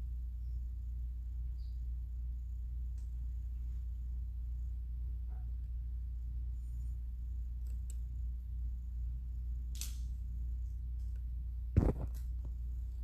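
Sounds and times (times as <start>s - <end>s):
low hum: 0.0s - 13.0s
short crackle: 11.7s - 12.6s.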